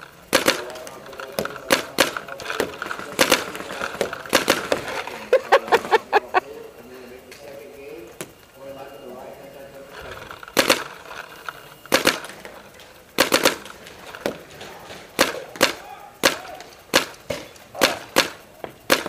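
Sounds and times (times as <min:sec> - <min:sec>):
paintball markers popping: 0:00.3 - 0:06.0, 0:10.3 - 0:19.0.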